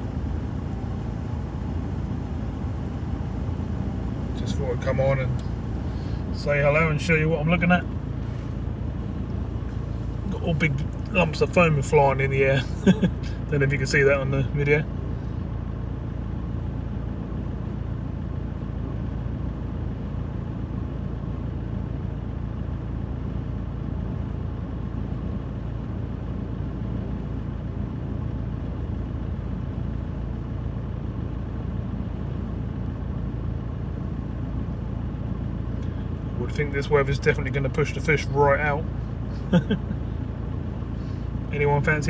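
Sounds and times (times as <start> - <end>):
muffled gale rumble: 0.0 - 15.3.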